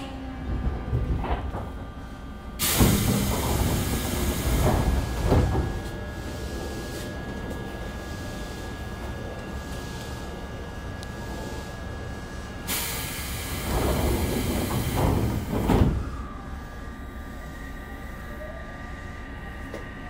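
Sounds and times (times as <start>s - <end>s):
stationary train hum: 0.0s - 20.0s
pneumatic door air hiss: 2.6s - 5.2s, 12.6s - 16.1s.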